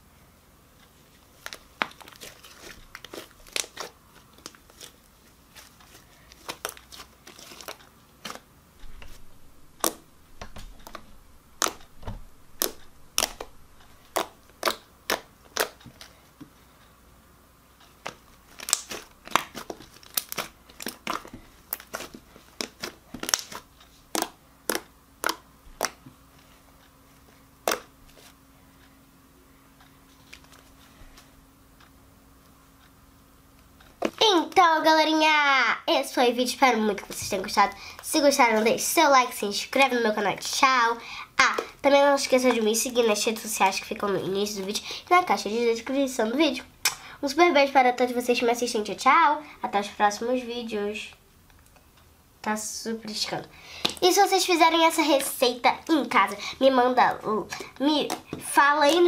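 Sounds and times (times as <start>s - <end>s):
slime popping and crackling: 9.0s - 15.8s, 18.0s - 26.0s, 27.6s - 27.9s, 57.6s - 59.0s.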